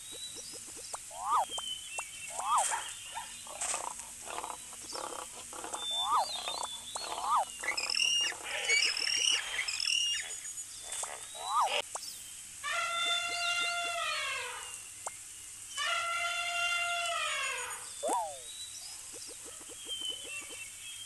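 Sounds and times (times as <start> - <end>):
high squealing calls: 0.3 - 14.8, 15.7 - 18.5
rising and falling animal call: 1.1 - 1.6, 3.5 - 10.4, 11.2 - 11.9, 12.6 - 14.8, 15.8 - 18.5
rough animal calls: 2.3 - 11.8.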